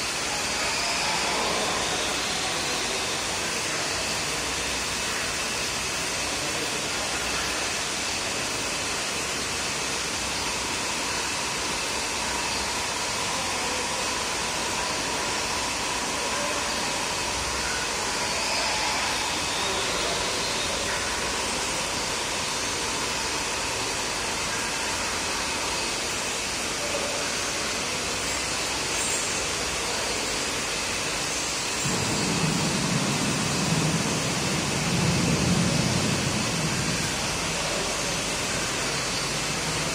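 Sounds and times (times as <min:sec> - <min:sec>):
steady rushing noise: 0:00.0 - 0:39.9
low rumble: 0:31.8 - 0:37.6.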